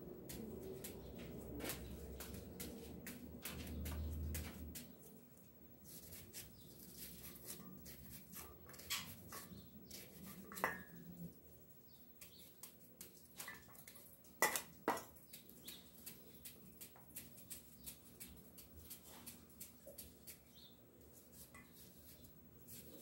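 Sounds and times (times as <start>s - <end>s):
knife cutting onion: 5.8s - 10.7s.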